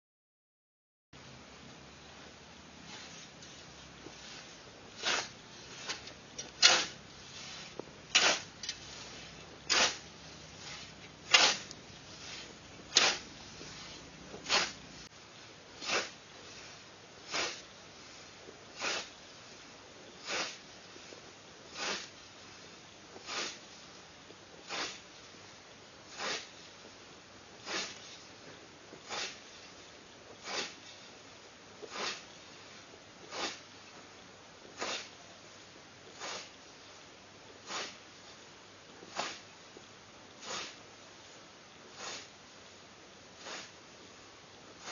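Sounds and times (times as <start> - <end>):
scythe swishing through grass: 2.8 - 15.1, 15.7 - 24.0, 24.6 - 25.2, 26.1 - 26.9, 27.6 - 28.3, 28.9 - 31.1, 31.8 - 32.7, 33.3 - 33.7, 34.8 - 35.2, 36.1 - 36.6, 37.6 - 38.0, 39.0 - 39.5, 40.4 - 40.8, 41.9 - 42.3, 43.4 - 43.8.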